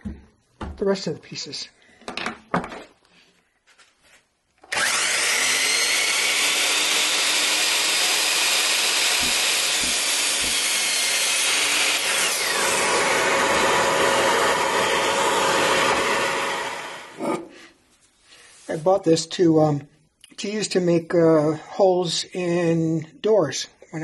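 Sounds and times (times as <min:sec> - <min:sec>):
miter saw cutting wood: 0:04.6 - 0:17.4.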